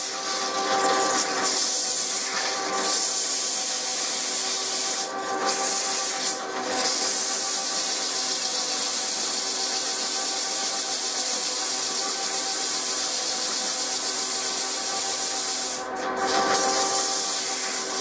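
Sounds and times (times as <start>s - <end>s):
lathe tool scraping hiss: 14.7s - 18.0s.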